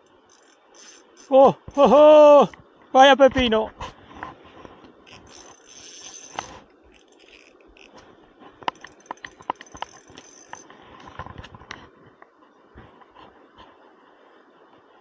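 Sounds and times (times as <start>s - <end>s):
spinning reel buzzing: 0.0s - 1.5s, 5.0s - 8.0s, 8.6s - 10.7s
clicks and knocks of rod handling: 4.2s - 11.9s.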